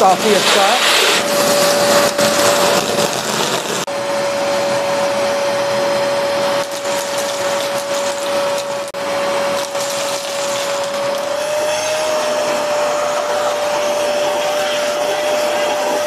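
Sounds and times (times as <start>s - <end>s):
kernels sucked up through hose: 0.0s - 3.9s
vacuum cleaner whining: 0.0s - 16.0s.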